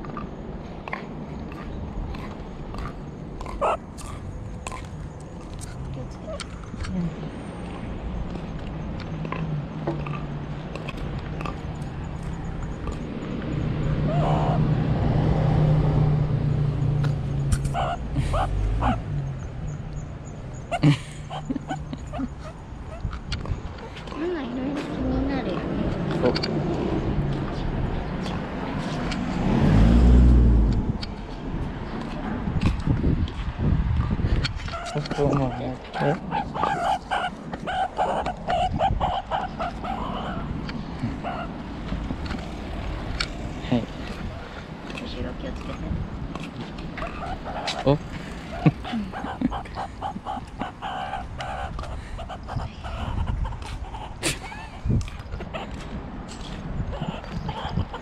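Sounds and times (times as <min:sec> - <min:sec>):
low traffic hum: 0:00.0 - 0:58.0
small animal calls: 0:00.9 - 0:07.2, 0:08.3 - 0:14.7, 0:17.6 - 0:19.8, 0:34.4 - 0:58.0.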